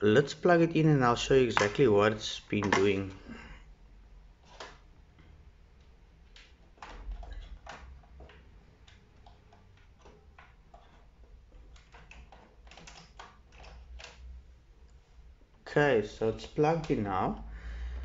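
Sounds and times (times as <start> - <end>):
cable and plug clicks: 1.5 - 1.8, 2.6 - 3.0.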